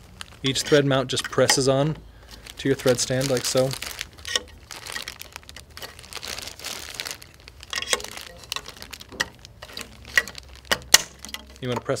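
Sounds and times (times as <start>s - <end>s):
plastic bag crinkling: 0.0s - 12.0s
small plastic parts clicking: 7.7s - 12.0s.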